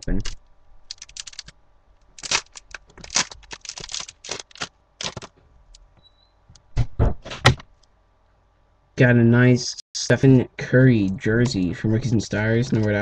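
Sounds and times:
wrapper crinkling and tearing: 0:00.0 - 0:01.5, 0:02.1 - 0:05.3.

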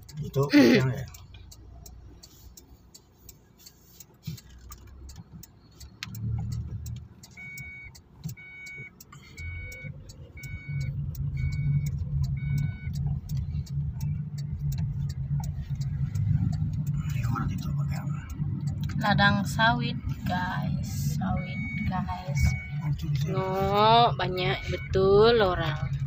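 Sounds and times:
car engine hum: 0:00.0 - 0:26.0
turn signal ticking: 0:00.0 - 0:26.0
short electronic beeps: 0:07.3 - 0:14.6, 0:20.0 - 0:26.0.

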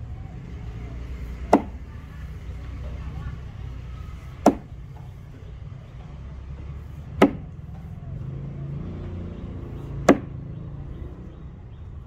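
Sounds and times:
axe chopping into wood: 0:01.4 - 0:01.8, 0:04.4 - 0:04.8, 0:07.1 - 0:07.6, 0:10.0 - 0:10.4.

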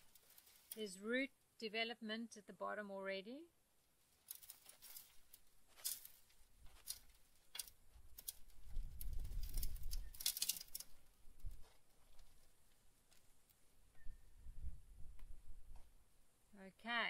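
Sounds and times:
plastic pot clicking and crackling: 0:06.8 - 0:11.0.

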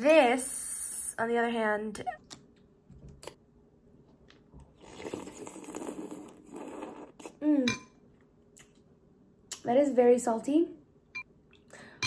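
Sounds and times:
slurping soup: 0:04.7 - 0:07.4.

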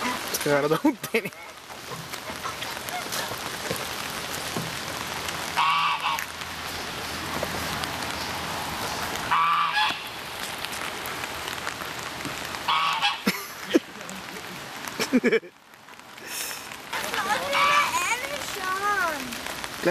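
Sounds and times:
rain falling on wet ground: 0:00.0 - 0:19.9
geese honking: 0:05.5 - 0:06.4, 0:09.2 - 0:10.2, 0:12.6 - 0:13.3, 0:16.9 - 0:18.2.

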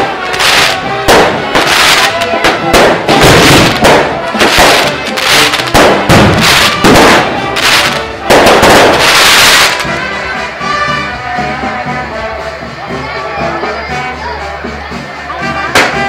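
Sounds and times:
fireworks bangs: 0:00.0 - 0:10.2, 0:15.7 - 0:16.0
fireworks crackling: 0:00.0 - 0:12.8, 0:15.5 - 0:16.0
music: 0:00.0 - 0:16.0.

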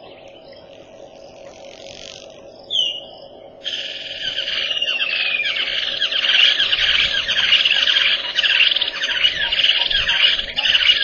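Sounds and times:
birds chirping: 0:00.0 - 0:11.0
faint steady hum: 0:00.0 - 0:11.0.

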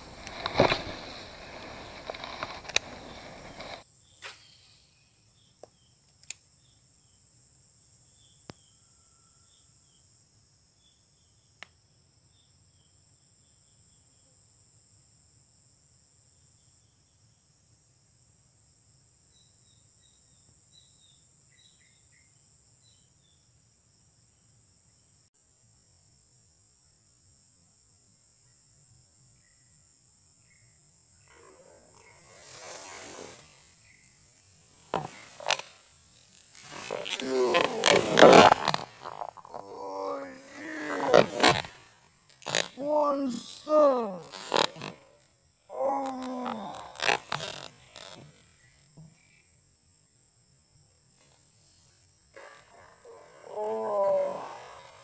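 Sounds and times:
faint ticks: 0:00.0 - 0:03.8, 0:05.6 - 0:06.5, 0:11.6 - 0:11.8
hands handling fishing rod: 0:00.0 - 0:03.8, 0:34.9 - 0:39.4.

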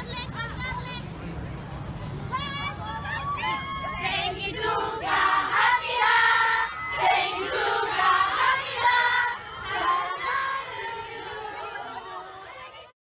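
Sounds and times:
crowd cheering and screaming: 0:02.6 - 0:04.3, 0:06.0 - 0:12.5.

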